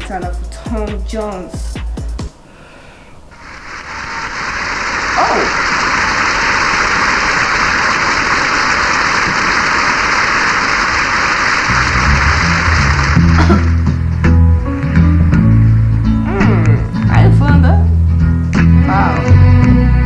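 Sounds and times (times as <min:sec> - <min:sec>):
audience applauding: 0:03.5 - 0:14.1.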